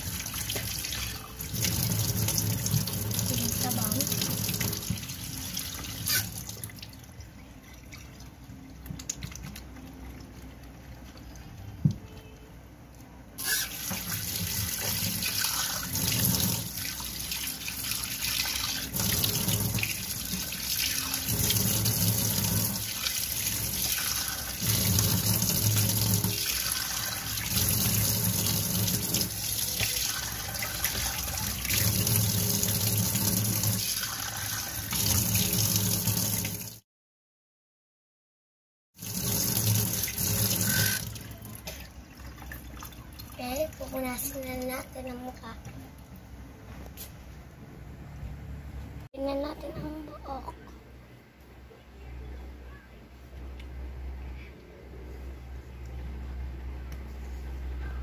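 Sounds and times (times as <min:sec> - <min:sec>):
tap water running into sink: 0:00.0 - 0:06.9, 0:13.4 - 0:36.8, 0:39.0 - 0:43.5.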